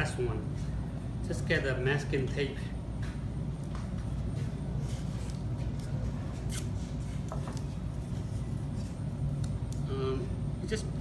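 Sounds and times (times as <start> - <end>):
low room hum: 0.0 - 11.0
masking tape ripping: 6.4 - 6.8.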